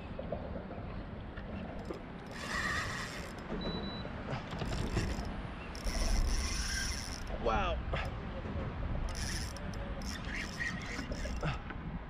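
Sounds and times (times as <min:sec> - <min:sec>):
fishing reel whirring and clicking: 0:01.8 - 0:03.5, 0:04.6 - 0:07.4, 0:09.1 - 0:11.5.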